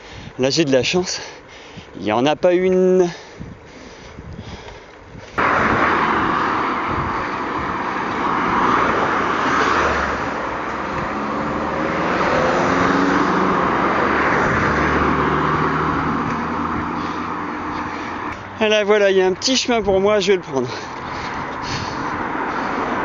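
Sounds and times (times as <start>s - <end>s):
bicycle riding rushing noise: 0.0s - 23.0s
passing car engine hum: 5.4s - 19.1s, 20.9s - 23.0s.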